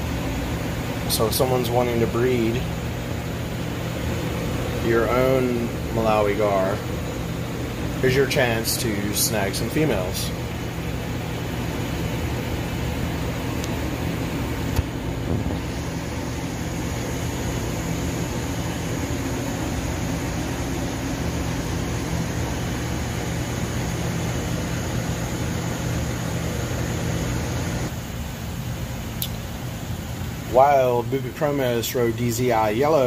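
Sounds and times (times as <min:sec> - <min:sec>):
aquarium equipment hum and hiss: 0:00.0 - 0:33.0
sharp click: 0:29.2 - 0:29.4.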